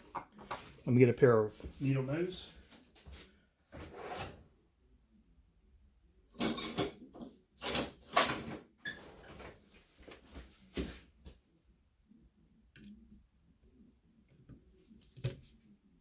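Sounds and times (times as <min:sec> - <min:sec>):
quiet shuffling: 0:00.4 - 0:03.8, 0:09.2 - 0:11.6
tools clattering and scraping: 0:06.4 - 0:09.4.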